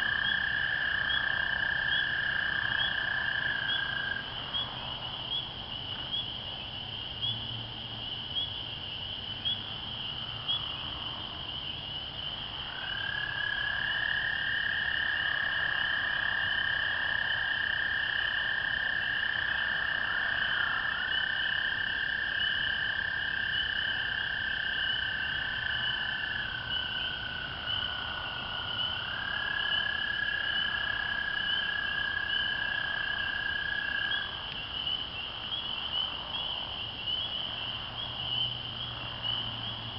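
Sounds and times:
toads trilling: 0.0s - 7.5s, 8.1s - 39.9s
frogs peeping: 0.0s - 39.9s.

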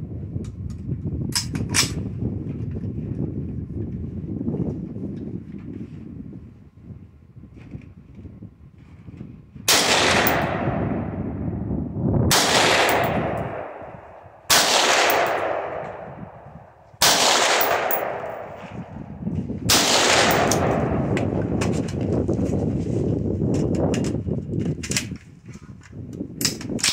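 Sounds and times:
rifle shots with echo: 9.7s - 11.2s, 12.3s - 21.6s.

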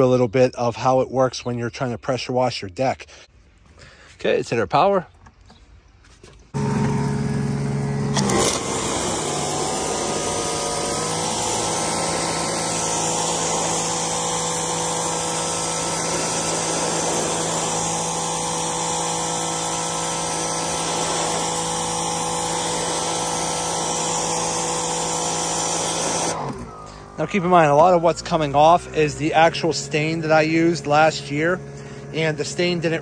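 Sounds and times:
pressure washer pump humming: 6.5s - 33.0s
high-pressure water jet hissing: 8.1s - 33.0s.

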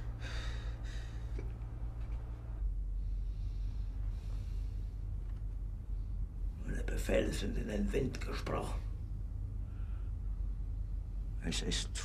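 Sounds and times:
faint breathing: 0.0s - 6.6s, 9.6s - 10.6s
low rumble of room tone: 0.0s - 12.0s.

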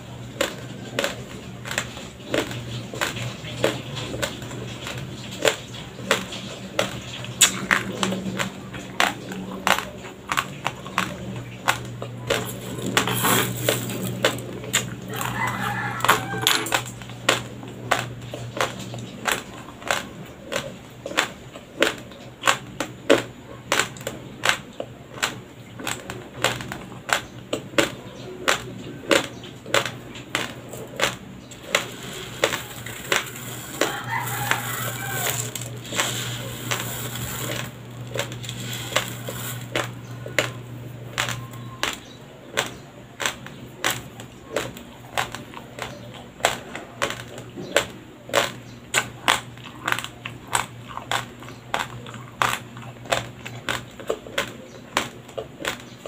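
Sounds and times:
dry rice crunched between teeth: 0.0s - 56.0s
faint low hum: 0.0s - 56.0s
rice grains rustling: 31.6s - 40.0s.

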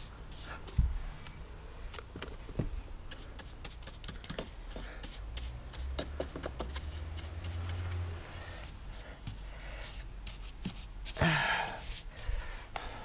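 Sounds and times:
paintbrush scratching on wood: 3.1s - 8.1s.

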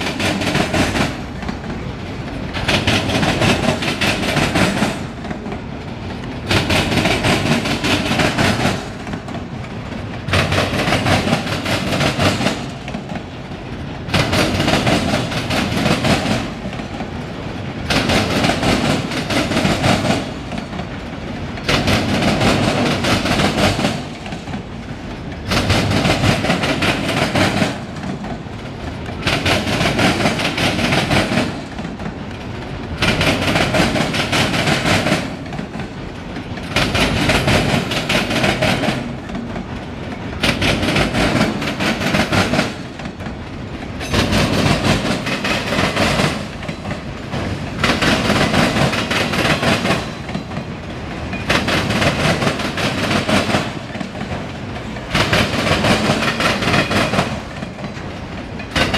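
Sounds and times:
train wheels clacking on rails: 0.0s - 58.9s.

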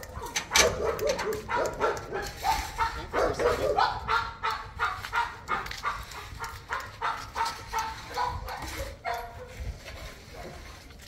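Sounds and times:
dog barking rapidly: 0.1s - 9.5s.

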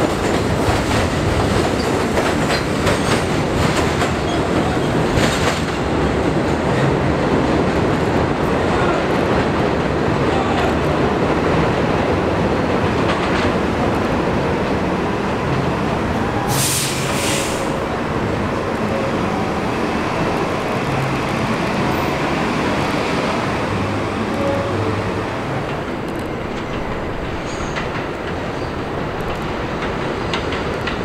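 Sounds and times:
train wheels rumbling on rail: 0.0s - 31.0s
brief high hiss: 16.5s - 17.8s.

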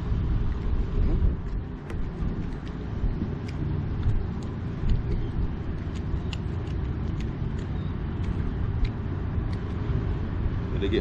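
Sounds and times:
wind buffeting microphone: 0.0s - 11.0s
faint scattered clicks: 3.4s - 9.8s.

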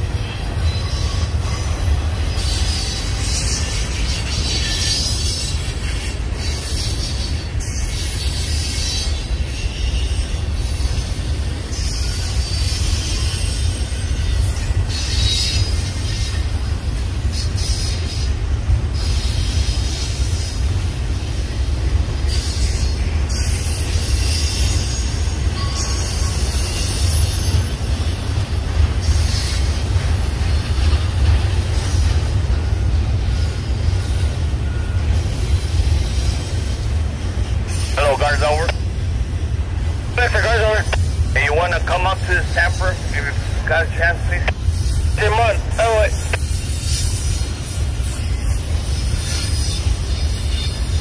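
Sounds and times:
train wheels rumbling on rail: 0.0s - 51.0s.

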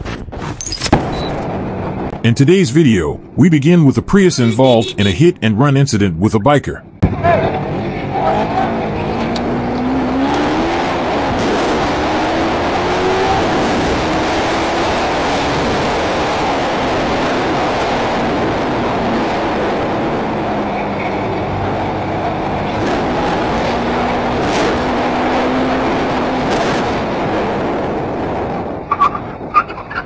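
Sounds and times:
motorcycle engine accelerating: 6.9s - 29.5s.

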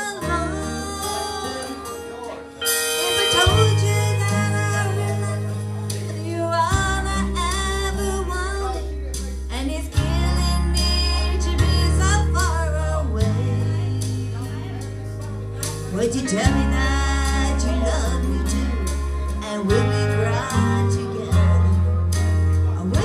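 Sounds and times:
woman singing into a microphone: 0.0s - 2.3s, 3.0s - 15.1s, 15.7s - 23.0s
country backing track with guitar: 0.0s - 23.0s
held bass notes: 0.0s - 23.0s.

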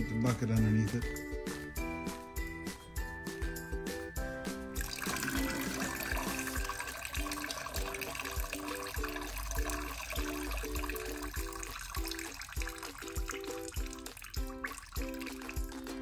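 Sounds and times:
background music with beat: 0.0s - 16.0s
liquid splashing into bucket: 4.8s - 16.0s.

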